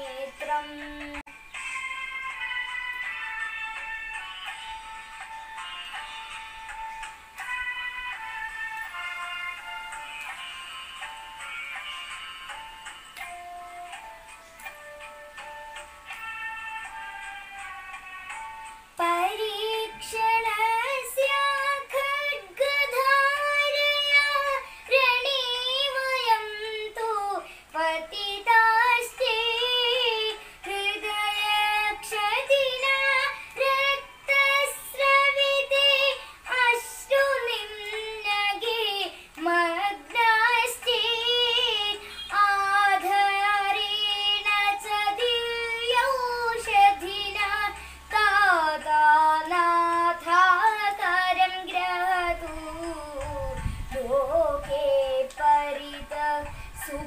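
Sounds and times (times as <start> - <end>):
girl singing solo: 0.0 - 1.2.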